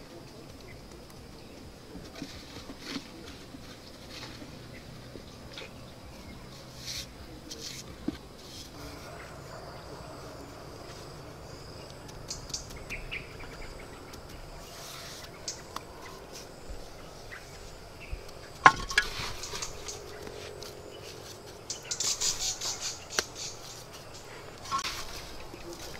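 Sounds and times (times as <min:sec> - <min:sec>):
faint insect drone: 0:00.0 - 0:25.9
bricks knocking: 0:18.6 - 0:19.4.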